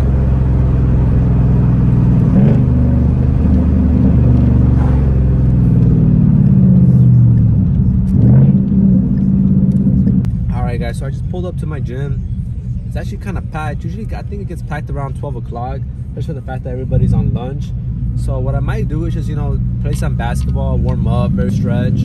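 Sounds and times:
car engine revving during downshifts: 0:00.0 - 0:10.3.

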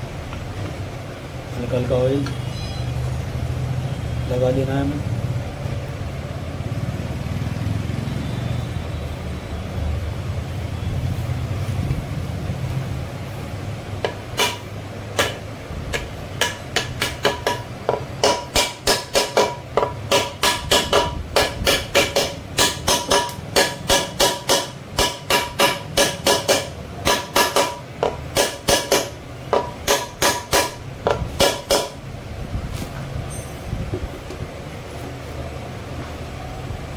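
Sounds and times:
mallet tapping metal bearing: 0:14.0 - 0:32.0.

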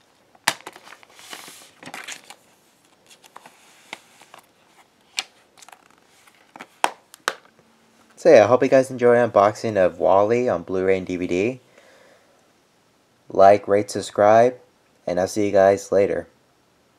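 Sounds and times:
paper rustling: 0:00.0 - 0:07.0.

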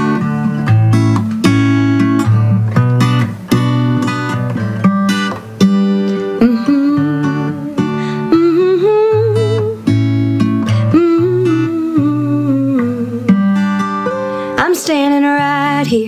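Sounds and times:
acoustic guitar strumming chords: 0:00.0 - 0:16.0.

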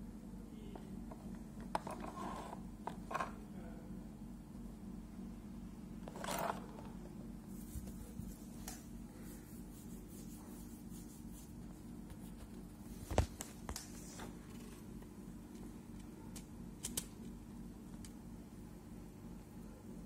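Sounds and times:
steady low hum: 0:00.0 - 0:20.0
soft handling rubbing: 0:01.1 - 0:03.4, 0:06.0 - 0:15.7.

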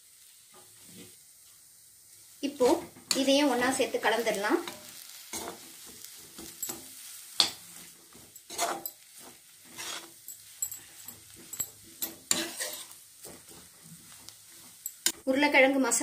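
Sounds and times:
spatula scraping a pan: 0:02.6 - 0:15.3.

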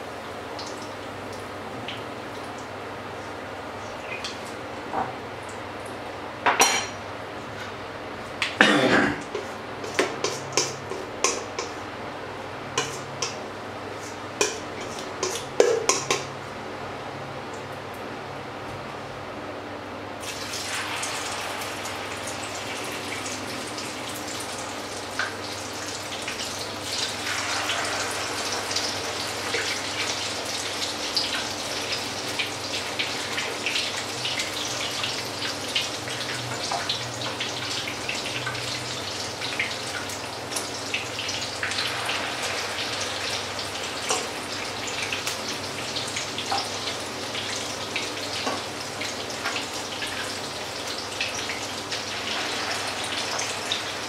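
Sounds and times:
batter sizzling in hot oil: 0:09.3 - 0:11.9, 0:20.2 - 0:54.0.

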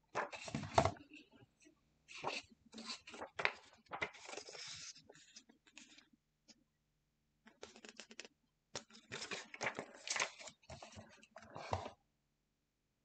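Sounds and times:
paper crinkling and rustling: 0:00.1 - 0:01.2, 0:02.1 - 0:06.1, 0:07.5 - 0:12.0.

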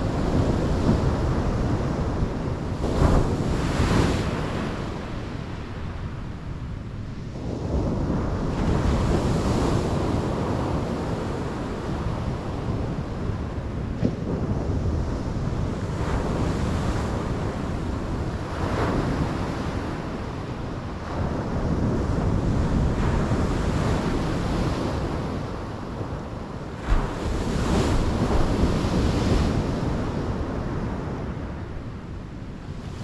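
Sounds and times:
wind rumbling on microphone: 0:00.0 - 0:33.0.

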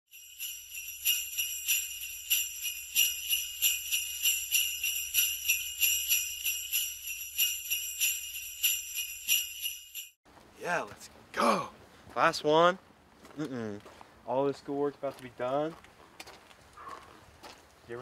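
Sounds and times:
sleigh bells jingling: 0:00.1 - 0:10.8.

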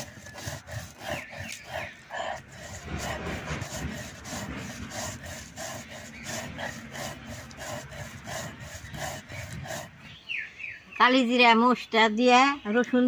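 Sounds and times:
stone roller grinding on stone slab: 0:00.0 - 0:10.0.

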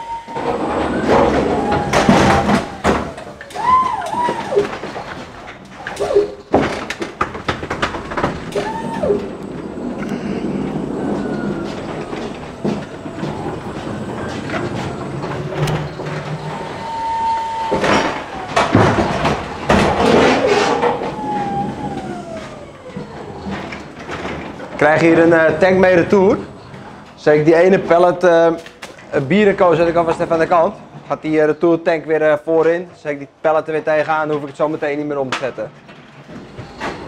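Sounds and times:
rattling and clattering knocks: 0:00.3 - 0:31.4
electric motor whining: 0:08.4 - 0:24.2.

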